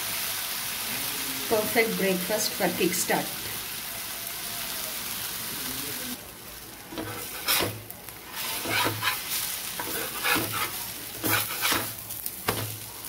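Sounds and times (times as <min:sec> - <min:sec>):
food sizzling in oil: 0:00.0 - 0:13.0
spatula scraping on griddle: 0:06.9 - 0:12.8.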